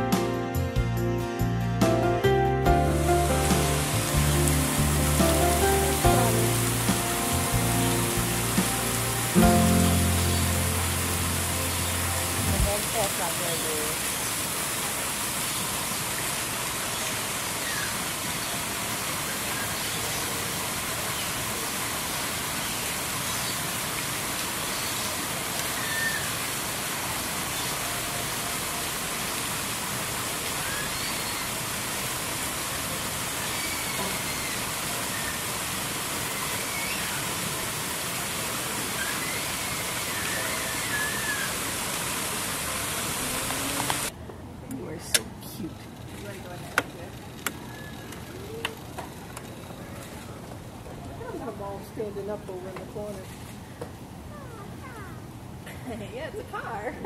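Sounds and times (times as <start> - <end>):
running water rushing: 2.7 - 44.2.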